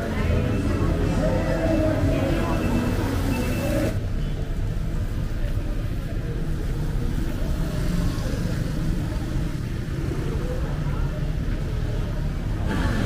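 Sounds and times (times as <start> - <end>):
motorbikes passing by: 6.2 - 13.0.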